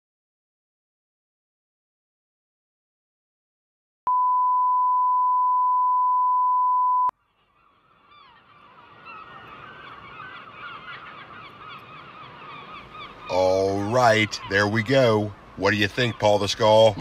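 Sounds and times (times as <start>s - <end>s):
test tone beep: 4.1s - 7.1s
gulls calling: 7.2s - 17.0s.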